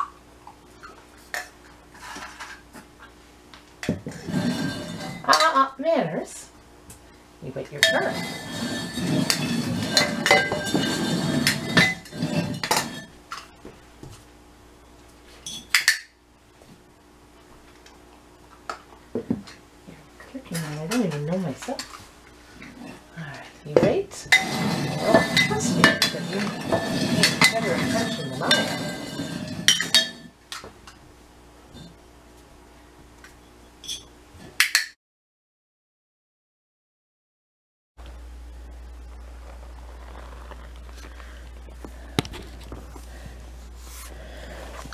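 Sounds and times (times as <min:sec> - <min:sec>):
flower pots clinking on floor: 0:07.8 - 0:13.1, 0:23.7 - 0:30.3.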